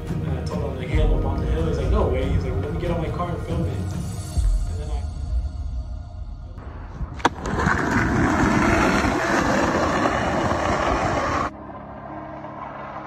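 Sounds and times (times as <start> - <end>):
skateboard wheels rolling on asphalt: 6.9 - 13.0.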